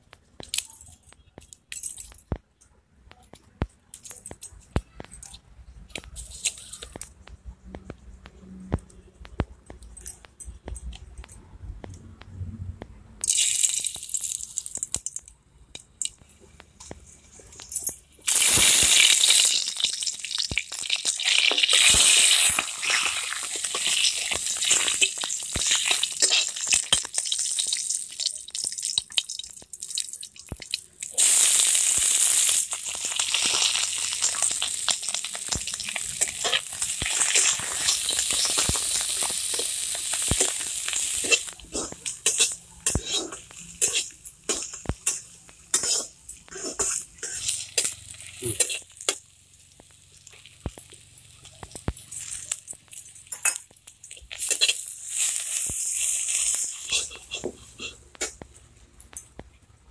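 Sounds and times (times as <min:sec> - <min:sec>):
hot oil sizzling in a pan: 0:18.2 - 0:57.9
metal spatula scraping a pan: 0:40.4 - 0:48.9, 0:54.3 - 0:58.0.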